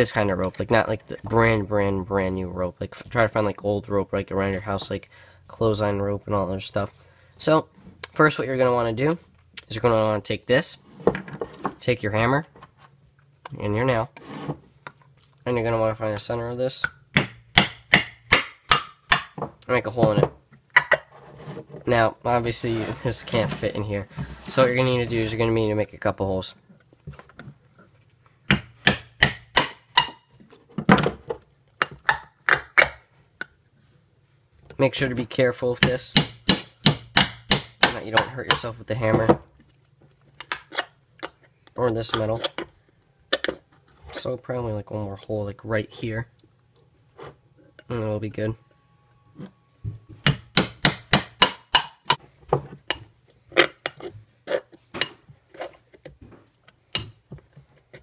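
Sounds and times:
hammer striking nail into metal: 36.1 - 38.0, 50.2 - 52.2.

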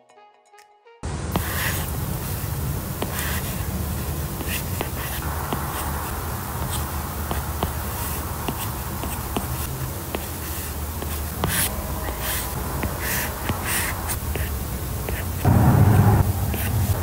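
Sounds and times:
pen scratching on paper: 1.4 - 1.9, 3.0 - 3.7, 4.4 - 14.5, 15.1 - 15.4, 16.5 - 17.0
low buzzing hum: 11.3 - 17.0.

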